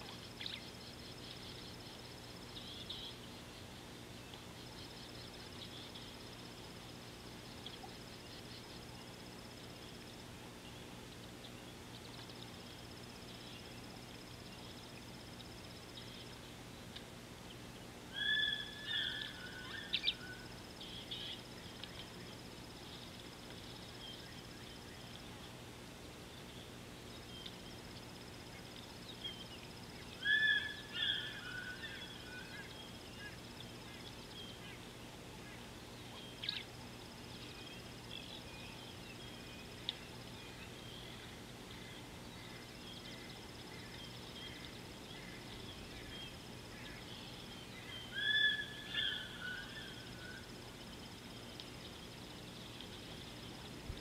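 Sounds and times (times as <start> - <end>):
wild birds chirping: 0.0 - 54.0.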